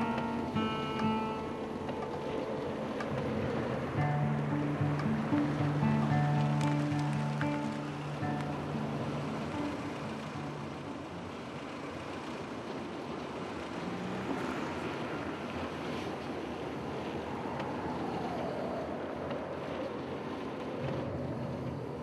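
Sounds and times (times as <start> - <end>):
wind rushing over microphone: 13.4 - 22.0.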